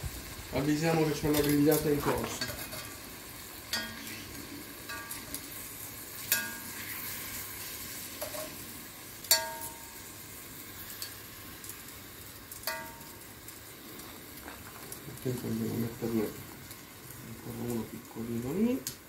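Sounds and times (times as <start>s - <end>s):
meat sizzling in oil: 0.0s - 19.0s
metal tongs clinking on pot: 1.2s - 3.0s, 3.7s - 4.3s, 4.9s - 5.4s, 6.2s - 6.8s, 9.3s - 10.1s, 11.0s - 11.2s, 12.6s - 13.3s.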